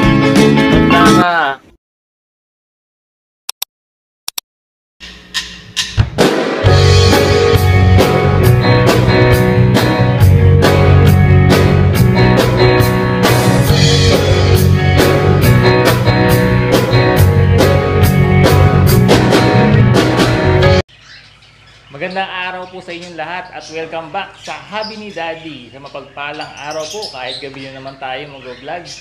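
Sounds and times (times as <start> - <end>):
intro music with drum beat: 0.0 - 1.2, 5.0 - 20.8.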